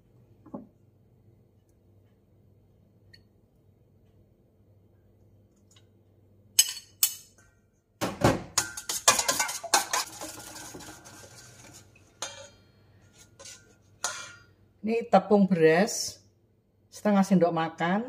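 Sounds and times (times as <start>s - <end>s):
spoon clinking in metal bowl: 6.6s - 7.4s, 8.6s - 11.6s, 12.2s - 12.7s, 13.4s - 14.5s.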